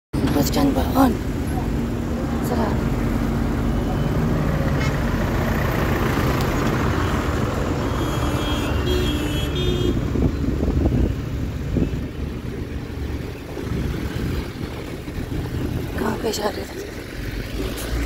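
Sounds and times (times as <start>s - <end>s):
road traffic rumbling: 0.1s - 18.0s
vehicle horn tone: 7.8s - 10.1s.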